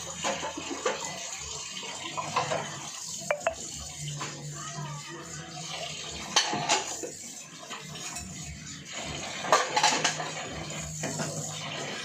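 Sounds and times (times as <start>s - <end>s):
dishes and cutlery clattering: 9.4s - 11.5s.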